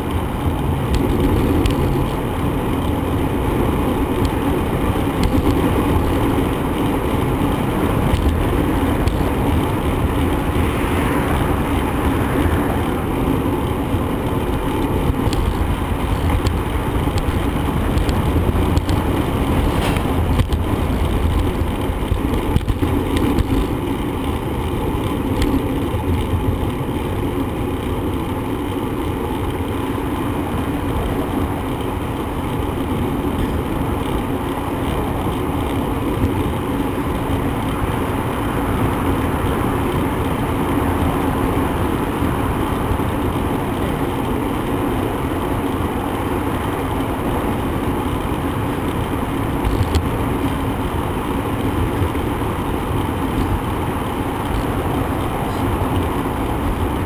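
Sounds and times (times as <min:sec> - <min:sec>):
bicycle tyres on road: 0:00.0 - 0:57.0
wind on microphone: 0:03.3 - 0:23.8.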